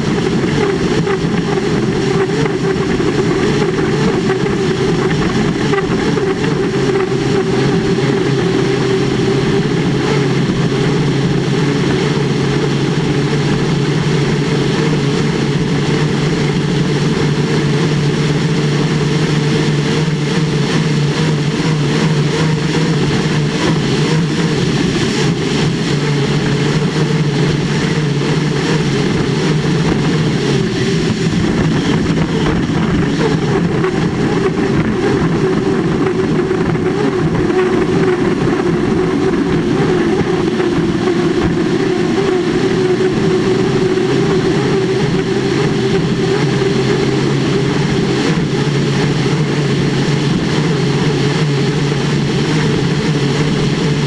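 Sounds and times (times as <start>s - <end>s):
turbine engine running: 0.0s - 54.0s
wind and water rushing: 0.0s - 54.0s.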